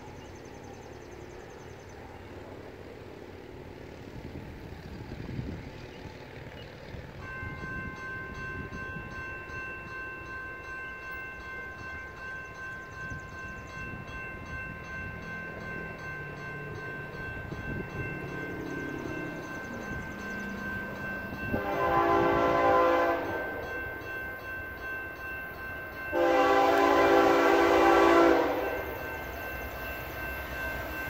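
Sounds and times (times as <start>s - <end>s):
crossing warning bell ringing: 0.0s - 31.0s
distant train horn: 21.4s - 24.0s, 26.0s - 29.2s.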